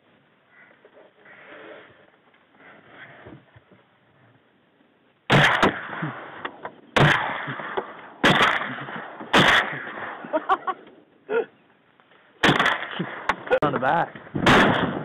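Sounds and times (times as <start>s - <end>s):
echoing shotgun blasts: 5.3s - 10.3s, 12.4s - 13.5s, 14.1s - 15.0s.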